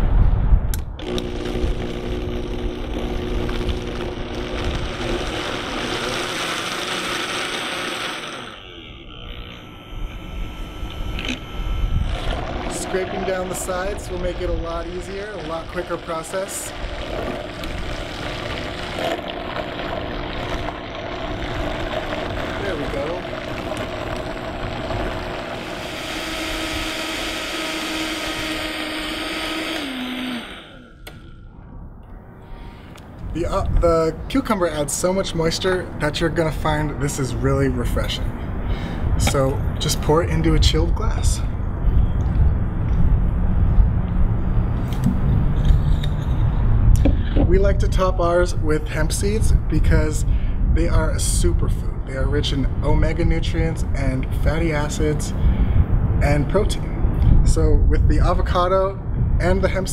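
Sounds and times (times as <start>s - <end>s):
blender running at high speed: 1.0s - 31.4s
blender switch click: 31.0s - 31.3s.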